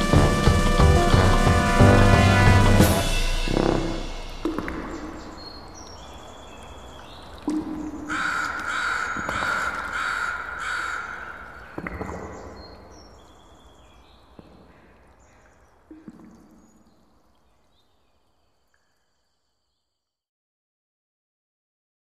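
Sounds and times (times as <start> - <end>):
loud calls: 0.0 - 13.8.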